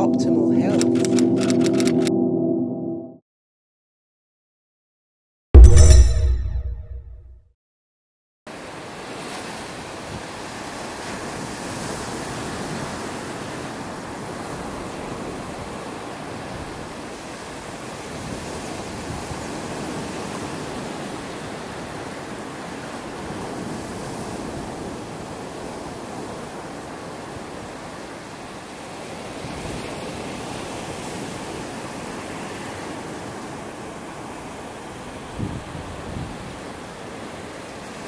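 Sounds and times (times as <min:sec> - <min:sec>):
ocean waves breaking on beach: 0:08.5 - 0:38.0.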